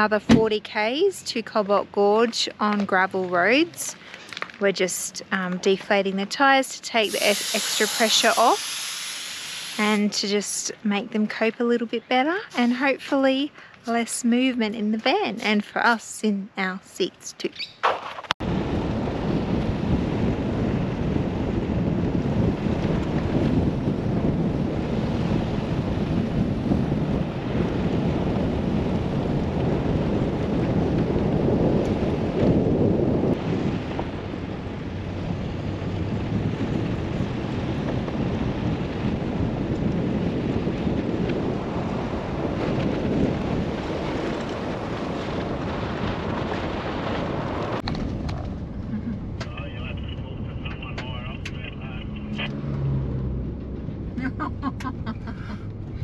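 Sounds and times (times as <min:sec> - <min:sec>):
tyres rumbling on gravel road: 0:00.0 - 0:10.4, 0:33.2 - 0:56.0
wind buffeting microphone: 0:00.0 - 0:56.0.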